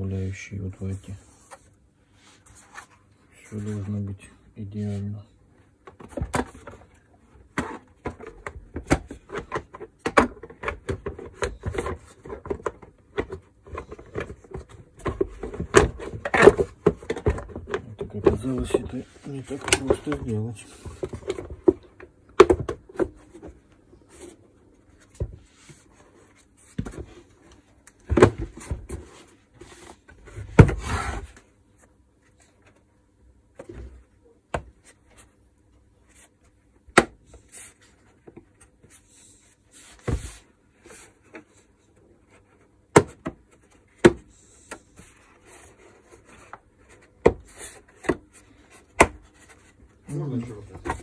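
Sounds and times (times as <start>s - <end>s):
plastic parts knocking and rubbing: 5.8s - 24.4s.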